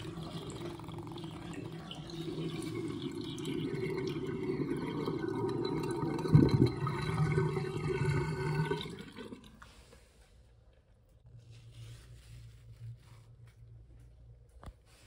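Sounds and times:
water gurgling down a sink drain: 0:00.0 - 0:09.8.

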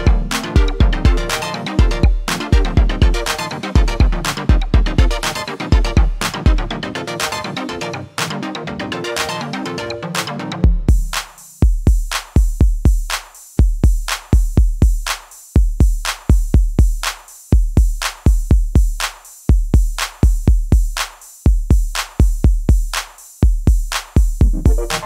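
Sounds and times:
electronic drum-machine beat: 0:00.0 - 0:25.0.

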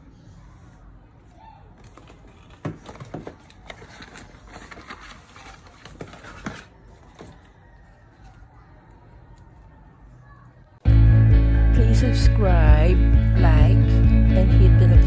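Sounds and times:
cardboard box being unpacked: 0:01.8 - 0:07.4.

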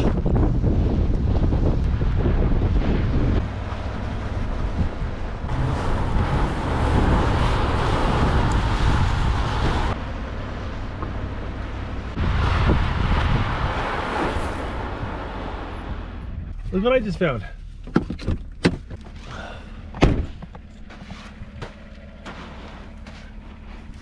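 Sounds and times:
wind on microphone: 0:00.0 - 0:10.0, 0:12.1 - 0:16.6
car engine low rumble: 0:00.0 - 0:24.0
tyre and road noise: 0:00.0 - 0:24.0.

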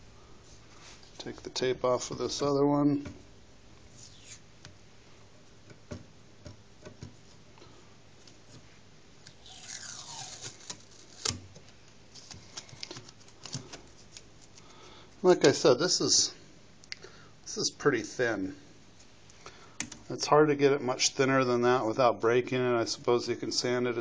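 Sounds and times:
crackly rasp of tape pulling: 0:09.3 - 0:11.5
masking tape peeling off: 0:09.3 - 0:11.5.

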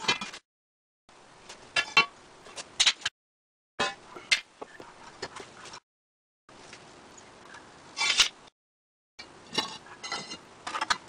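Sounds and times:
metal spring leaves clanking: 0:08.0 - 0:08.5.

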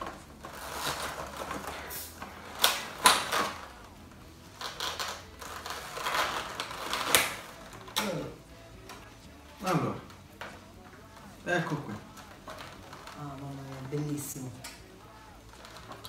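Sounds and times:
plastic snapping: 0:00.0 - 0:04.0, 0:04.6 - 0:16.0
plastic packaging crackling: 0:00.0 - 0:16.0.

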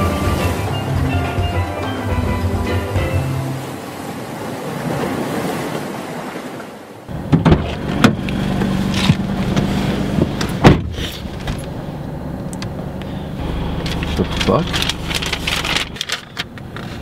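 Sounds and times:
surf washing on beach: 0:00.0 - 0:10.6
car door shutting: 0:07.1 - 0:11.8
car cabin low hum: 0:07.1 - 0:17.0.

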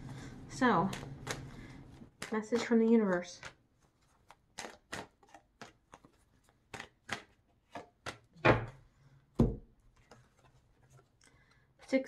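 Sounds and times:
cards being shuffled: 0:00.8 - 0:08.3
cards thumping on table: 0:09.4 - 0:09.7.

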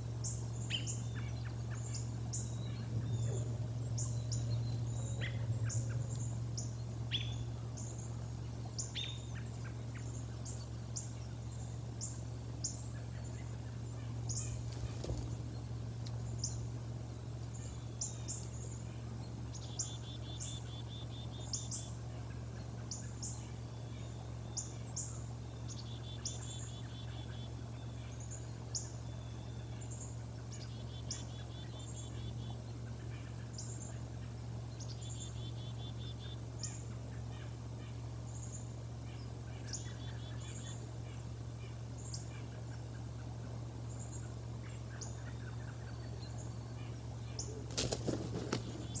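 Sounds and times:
low camera hum: 0:00.0 - 0:49.0
rapid rattling bird trills: 0:00.0 - 0:49.0
rustling of bird taking off: 0:14.6 - 0:15.5, 0:47.6 - 0:49.0.

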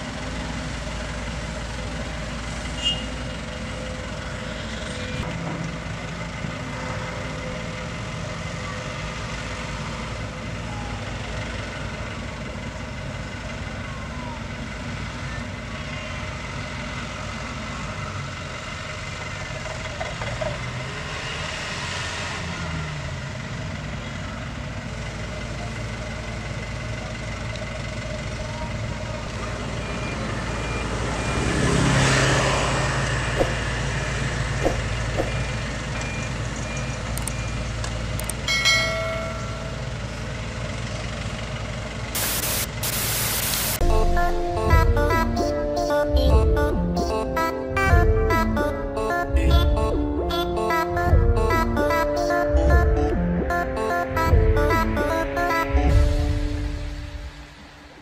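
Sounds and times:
diesel engines running: 0:00.0 - 0:58.0
reversing beep: 0:29.4 - 0:31.9, 0:34.7 - 0:37.8
music: 0:43.8 - 0:57.6.

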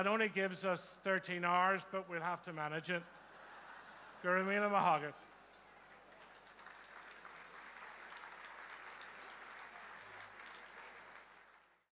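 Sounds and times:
large audience applauding: 0:05.2 - 0:11.9.

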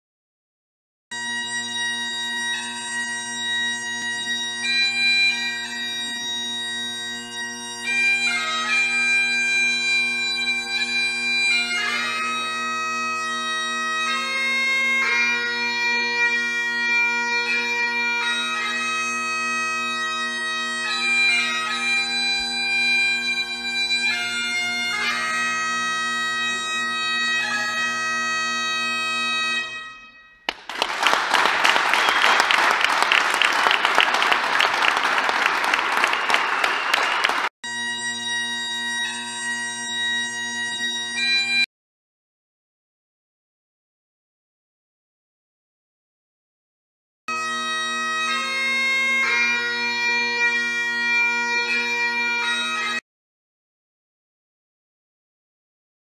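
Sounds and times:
bagpipe playing a tune: 0:01.1 - 0:41.7, 0:47.3 - 0:53.0
applause: 0:30.5 - 0:37.6.

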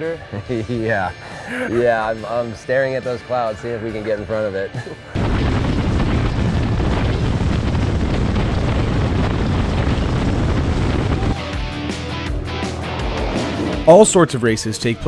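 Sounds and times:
wind buffeting microphone: 0:05.2 - 0:11.4
road noise: 0:12.0 - 0:14.2.

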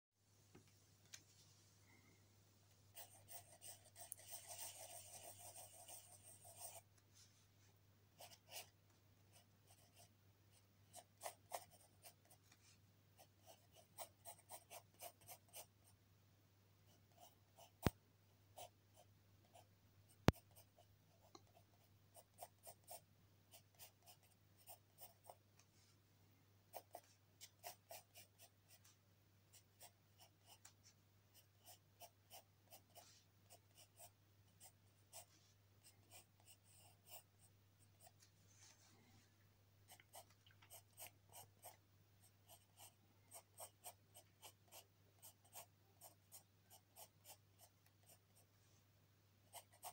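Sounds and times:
pencil sketching on paper: 0:02.9 - 0:06.9, 0:08.2 - 0:12.4, 0:13.2 - 0:15.7, 0:21.5 - 0:25.4, 0:26.7 - 0:28.8, 0:31.6 - 0:37.4, 0:42.4 - 0:48.5, 0:49.5 - 0:49.9.

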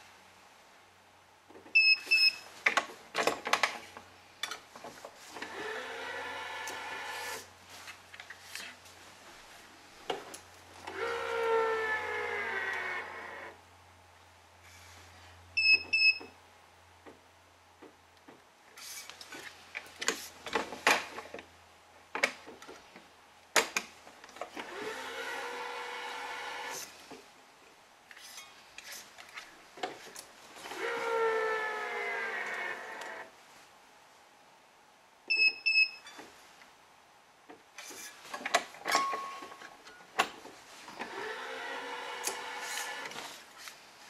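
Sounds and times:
two-tone beep: 0:01.8 - 0:02.4, 0:35.3 - 0:36.1
stringing machine motor whine: 0:05.4 - 0:07.4, 0:10.8 - 0:13.6, 0:24.7 - 0:26.8, 0:30.7 - 0:33.3, 0:41.0 - 0:43.2
clamps clicking and knocking: 0:38.3 - 0:40.4.

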